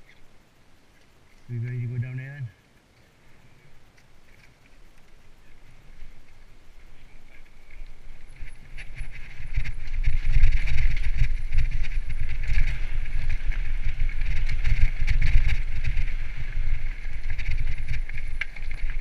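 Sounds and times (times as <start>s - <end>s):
tyres running over dirt and stones: 4.4s - 19.0s
wind buffeting microphone: 5.8s - 19.0s
bike rattling and knocking: 7.6s - 19.0s.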